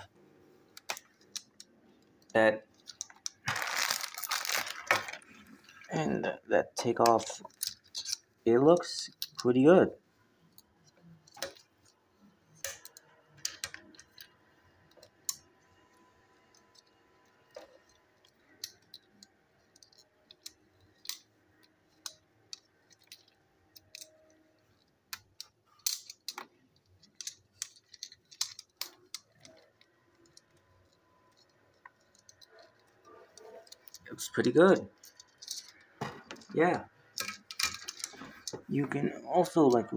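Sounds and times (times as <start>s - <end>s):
plastic toy parts clicking: 0.8s - 5.9s, 7.0s - 9.5s, 12.6s - 15.5s, 16.5s - 38.6s
plastic packaging crinkling: 2.9s - 5.9s.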